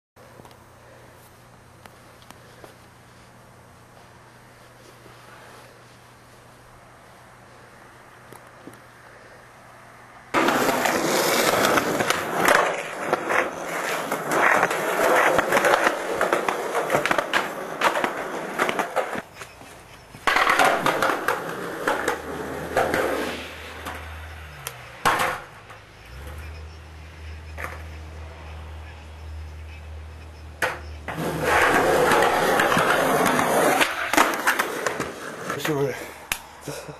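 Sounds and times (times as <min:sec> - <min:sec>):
skateboard wheels rolling on concrete: 0:00.2 - 0:36.9
skateboard clacking on pavement: 0:10.4 - 0:25.7, 0:27.6 - 0:27.9, 0:30.6 - 0:36.4.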